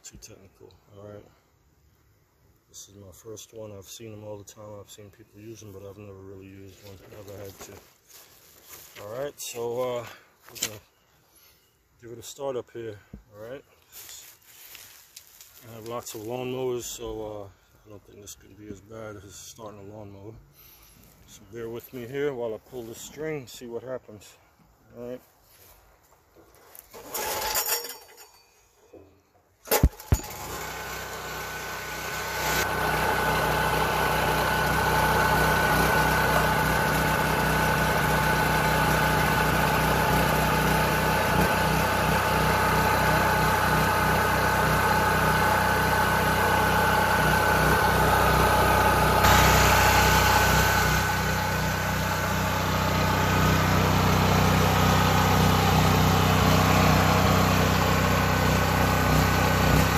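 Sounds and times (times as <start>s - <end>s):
generator engine running: 29.7s - 59.9s.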